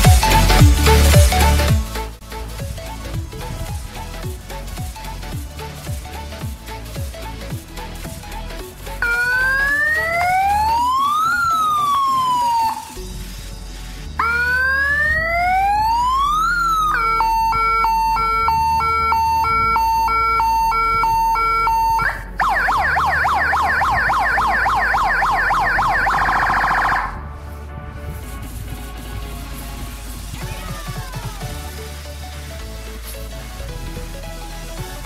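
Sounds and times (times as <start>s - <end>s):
electronic siren: 9.0s - 13.4s, 14.2s - 27.5s.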